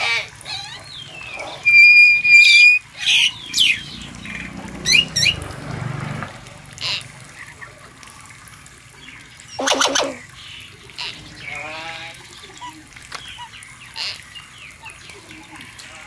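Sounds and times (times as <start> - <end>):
short animal calls: 0.5 - 3.3.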